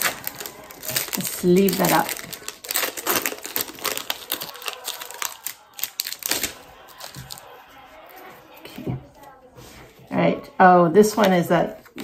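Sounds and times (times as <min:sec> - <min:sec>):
foil wrapper crinkling and tearing: 0:00.0 - 0:07.6.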